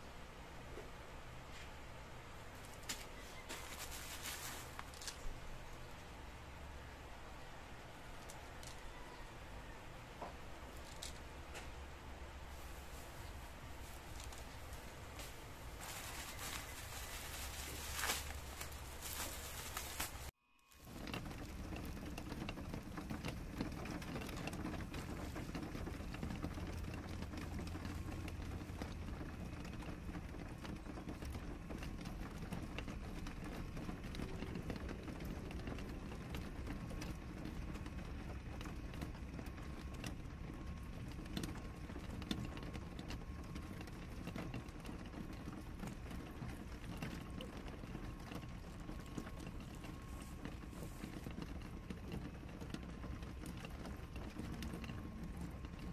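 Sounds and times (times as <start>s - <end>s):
steady background hiss: 0.0s - 20.8s
plastic mailer and cardboard rustling: 2.5s - 5.4s, 12.5s - 21.8s
small crackles and clicks: 2.5s - 6.0s, 8.1s - 9.3s, 10.2s - 11.8s, 12.5s - 55.9s.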